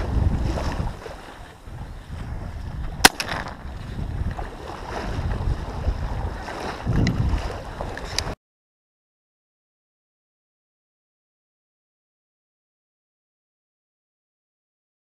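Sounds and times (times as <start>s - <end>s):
water lapping at boat: 0.0s - 8.4s
wind buffeting microphone: 0.0s - 8.4s
shotgun shot: 3.0s - 3.7s.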